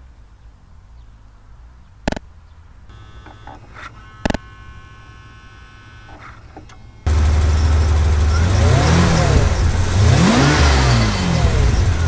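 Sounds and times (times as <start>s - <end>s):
low steady hum: 0.0s - 10.2s
sharp clicks: 2.0s - 2.3s, 2.9s - 12.0s
high electric whine: 2.9s - 12.0s.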